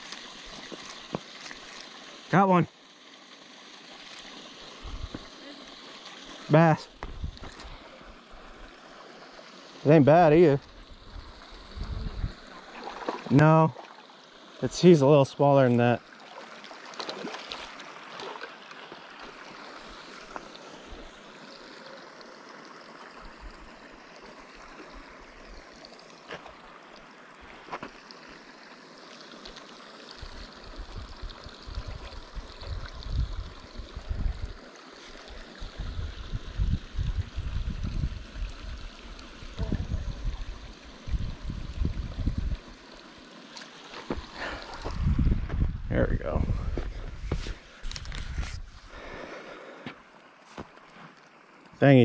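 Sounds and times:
flowing water rushing: 0.0 - 52.0.

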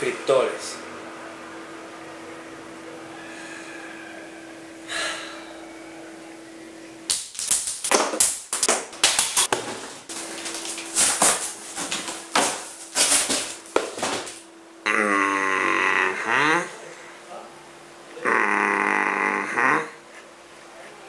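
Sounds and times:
cardboard box being ripped: 9.1 - 14.4.

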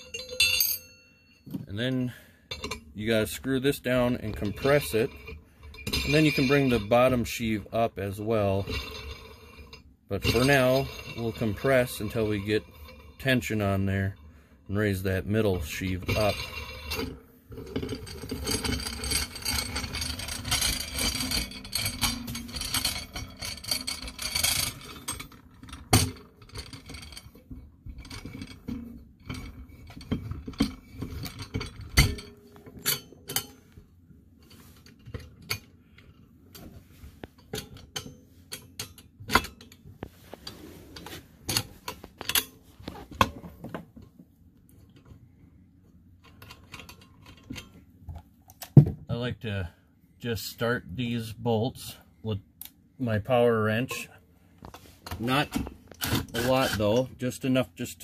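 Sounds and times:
metal scraping and rattling: 0.0 - 33.8, 53.4 - 58.0.

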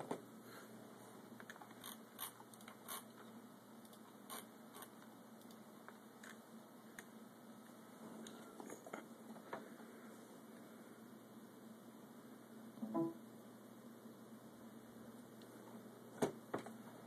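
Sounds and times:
faint clicks and handling noise: 1.3 - 9.8.

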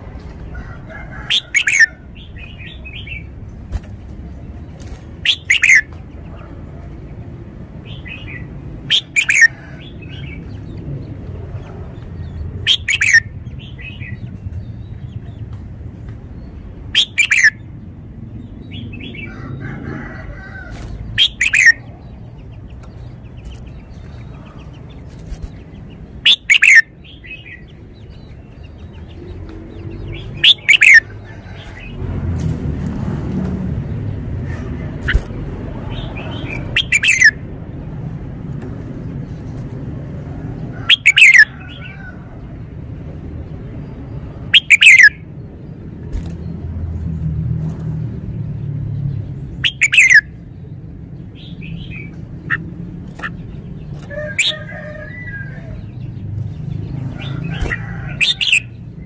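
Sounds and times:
low steady background rumble: 0.0 - 59.0
bird singing whistled song: 5.3 - 5.9, 17.0 - 17.6, 26.3 - 27.6, 30.4 - 31.0, 36.8 - 37.4, 44.6 - 45.2, 49.6 - 50.3.

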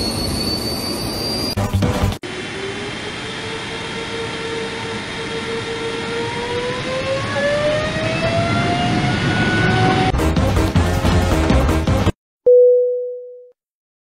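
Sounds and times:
jet engine spooling up: 2.3 - 10.2.

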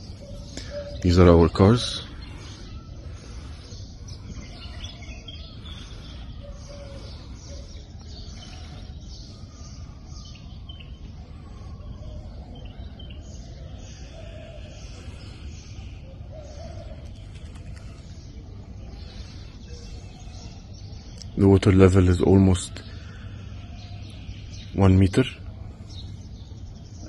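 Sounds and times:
birds chirping: 0.0 - 27.0
low outdoor rumble: 0.0 - 27.0.

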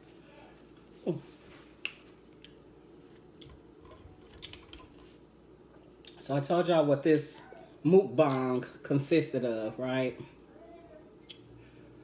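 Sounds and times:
soft chewing: 0.0 - 6.2.

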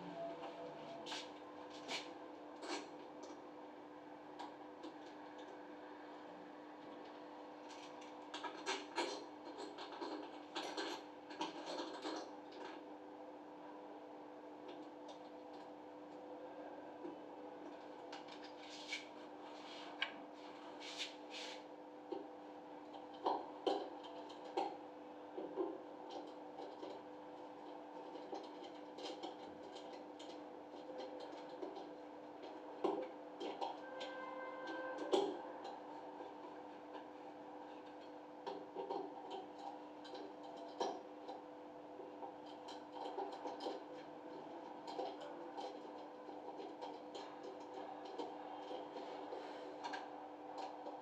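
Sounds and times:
steady hum: 0.0 - 8.0.

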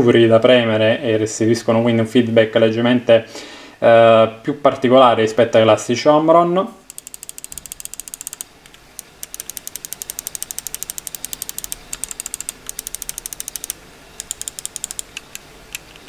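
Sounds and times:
mouse buttons clicking rapidly: 6.9 - 16.0.

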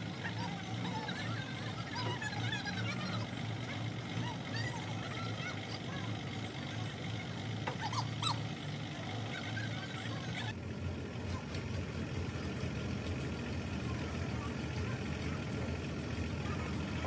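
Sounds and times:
truck engine running: 0.0 - 17.0
short high squeals: 7.7 - 10.4.

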